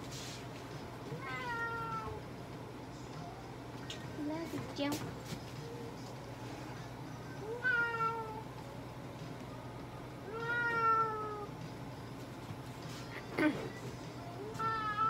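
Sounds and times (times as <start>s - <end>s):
cat meowing: 1.2s - 2.2s, 7.5s - 8.4s, 10.3s - 11.5s, 14.6s - 15.0s.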